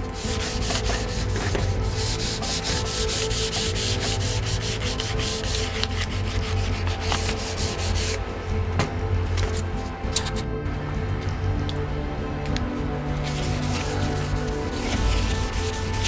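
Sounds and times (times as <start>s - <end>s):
sandpaper scratching strokes: 0.0s - 8.2s, 13.2s - 16.0s.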